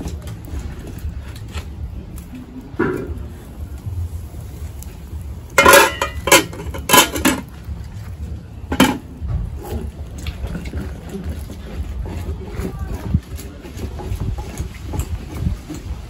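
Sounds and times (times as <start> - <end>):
low rumble: 0.0 - 16.0
pots and utensils clanking: 5.5 - 7.7, 8.6 - 16.0.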